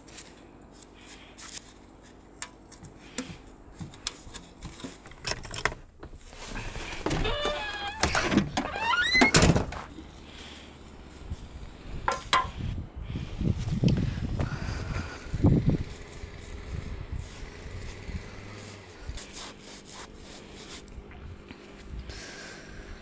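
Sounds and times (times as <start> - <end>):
squeaky hinge creaking: 7.0 - 9.5.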